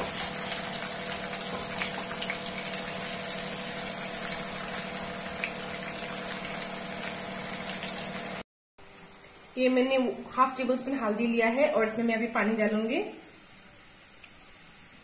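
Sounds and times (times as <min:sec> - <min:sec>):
onions sizzling in wok: 0:00.0 - 0:08.4
low mechanical hum: 0:00.0 - 0:15.0.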